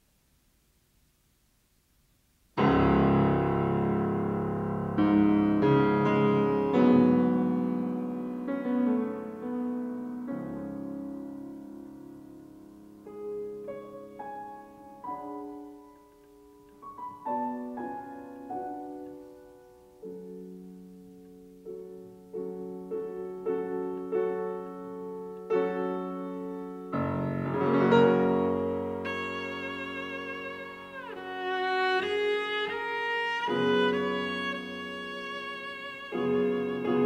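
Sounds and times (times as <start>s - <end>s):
grand piano playing slow notes: 2.6s - 37.0s.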